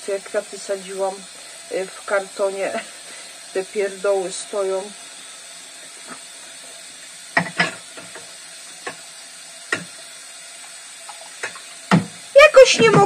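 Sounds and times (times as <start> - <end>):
faint steady hiss: 0.0 - 13.0
dishes clinking and knocking: 7.4 - 9.0.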